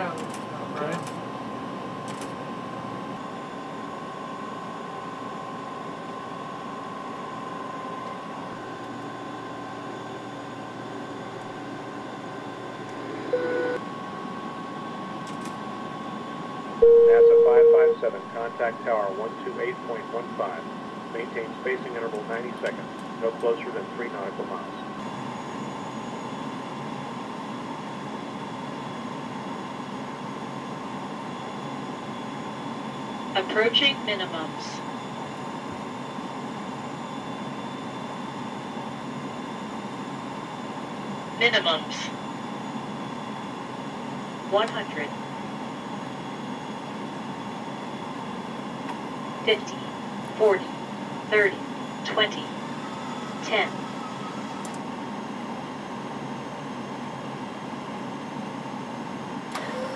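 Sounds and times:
brief tone: 13.1 - 13.8, 16.8 - 18.4, 52.7 - 54.8
flight deck hum and hiss: 14.4 - 25.6
faint steady tone: 16.8 - 18.7
faint steady tones: 16.8 - 26.4.

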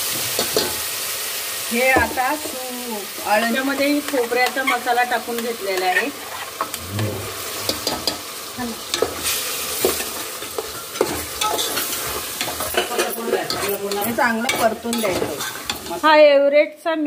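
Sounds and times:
onion and tomato sizzling in oil: 0.0 - 16.7
metal spoon scraping steel pot: 4.0 - 5.1, 8.9 - 16.0.

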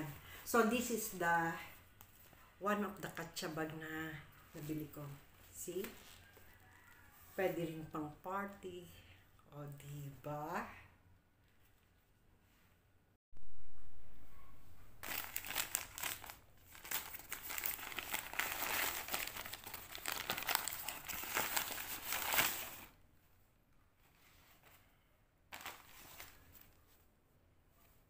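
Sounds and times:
paper crinkling and tearing: 15.0 - 23.0, 25.5 - 26.8.

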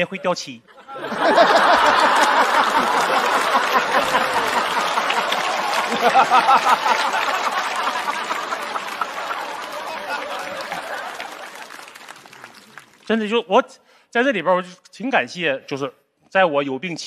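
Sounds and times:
studio audience laughing: 0.7 - 12.3.

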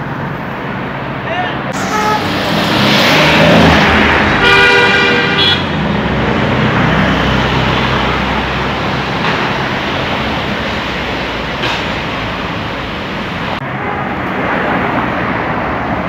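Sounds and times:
cars driving past: 0.0 - 16.0
car horn: 1.7 - 5.9.

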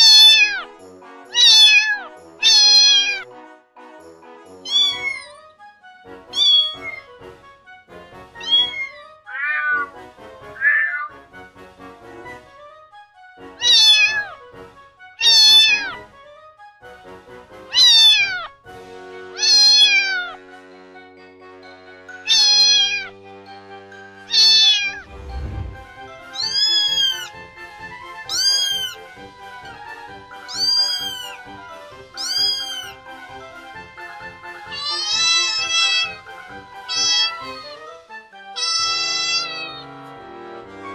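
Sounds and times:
kittens meowing: 0.0 - 0.7, 1.3 - 3.2, 4.7 - 5.4, 6.3 - 7.1, 8.4 - 9.9, 10.6 - 11.2, 13.6 - 14.4, 15.2 - 16.0, 17.7 - 18.5, 19.4 - 20.4, 22.2 - 23.1, 24.3 - 25.0, 26.3 - 27.4, 28.3 - 29.1, 30.4 - 31.5, 32.2 - 33.0, 34.6 - 36.2, 36.8 - 37.8, 38.6 - 39.9.

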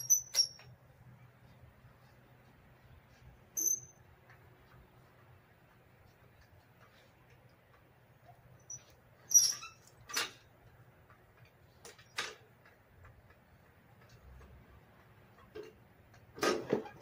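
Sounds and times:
tools knocking and clicking: 0.0 - 0.7.

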